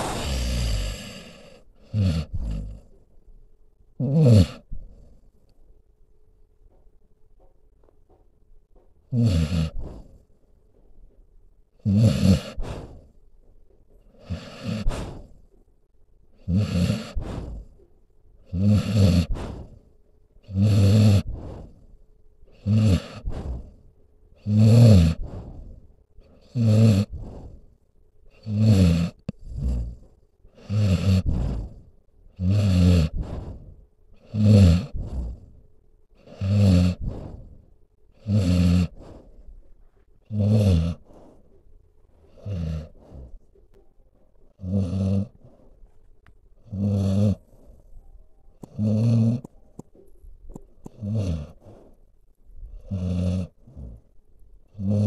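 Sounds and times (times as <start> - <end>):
dog snoring: 0.0 - 3.0, 4.0 - 5.2, 9.1 - 10.3, 11.8 - 13.2, 13.9 - 15.6, 16.3 - 41.5, 42.2 - 43.5, 44.5 - 45.8, 46.6 - 48.0, 48.6 - 52.0, 52.6 - 55.0.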